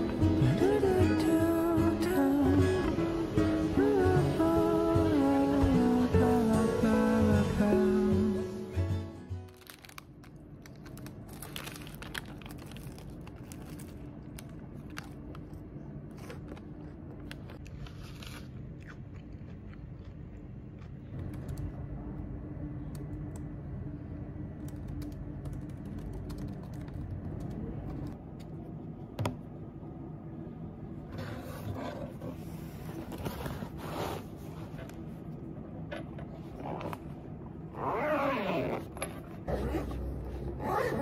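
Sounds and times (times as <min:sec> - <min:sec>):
steady low hum: 0:00.0 - 0:41.0
paper wrapper crinkling: 0:09.4 - 0:18.6
biting and chewing pastry: 0:09.5 - 0:21.8.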